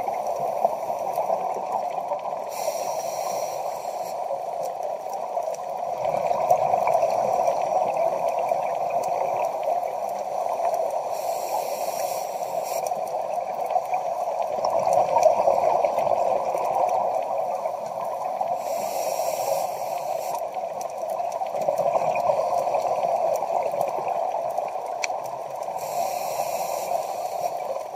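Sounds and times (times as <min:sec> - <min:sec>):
exhaled bubbles gurgling: 0:00.0 - 0:11.5, 0:12.1 - 0:27.9
steady underwater noise: 0:00.0 - 0:27.9
scuba regulator inhalation hiss: 0:00.1 - 0:04.7, 0:09.5 - 0:14.4, 0:17.0 - 0:20.7, 0:25.7 - 0:27.9.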